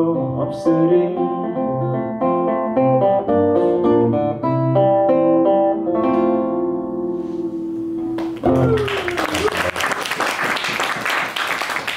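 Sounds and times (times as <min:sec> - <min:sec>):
fingerpicked acoustic guitar: 0:00.0 - 0:08.7.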